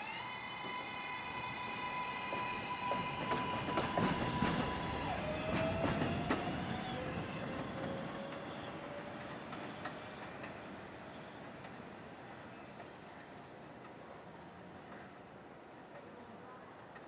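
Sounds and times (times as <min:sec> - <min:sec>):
electric train whine: 0:00.0 - 0:12.6
train wheels clicking over rail joints: 0:01.9 - 0:10.6.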